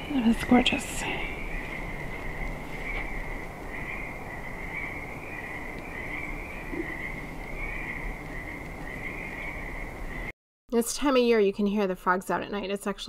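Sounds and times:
frogs trilling: 0.0s - 10.3s.

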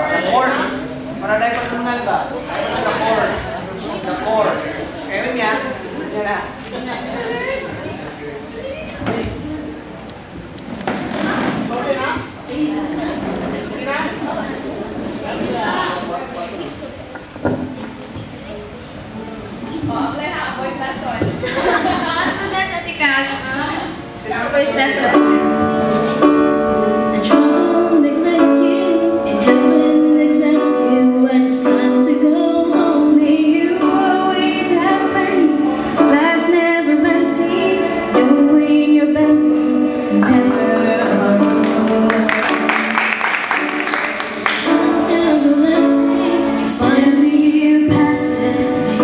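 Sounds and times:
women singing into microphones: 27.1s - 43.0s, 44.6s - 49.0s.

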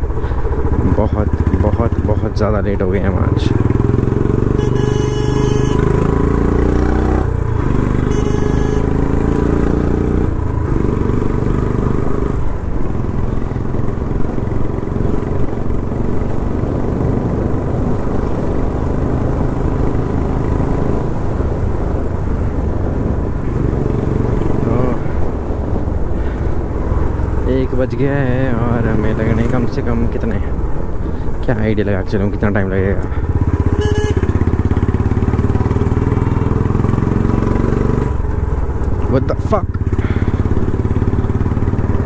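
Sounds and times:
motorcycle engine running: 0.0s - 21.2s, 33.0s - 42.0s.

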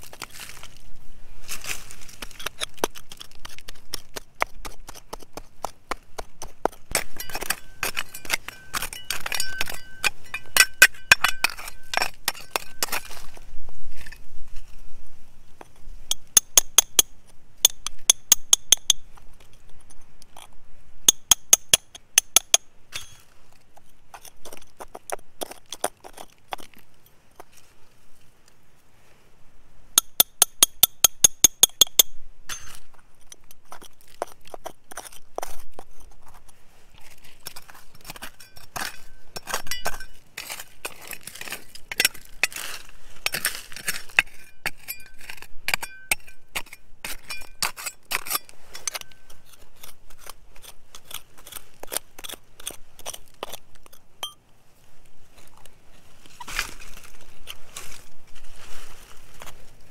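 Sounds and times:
blade scraping dirt and stones: 0.0s - 14.9s, 15.6s - 28.0s, 30.0s - 54.4s, 55.2s - 59.9s
hammer tapping metal chisel: 2.5s - 13.0s, 16.1s - 19.0s, 30.0s - 35.9s, 38.0s - 40.2s, 44.1s - 50.4s.

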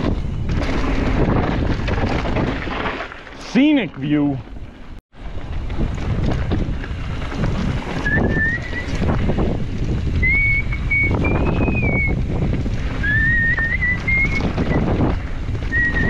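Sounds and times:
wind buffeting microphone: 0.0s - 3.0s, 3.7s - 16.0s
bike rustling and knocking: 0.0s - 16.0s
high wavering whistle-like squeals: 8.0s - 9.0s, 10.2s - 12.2s.

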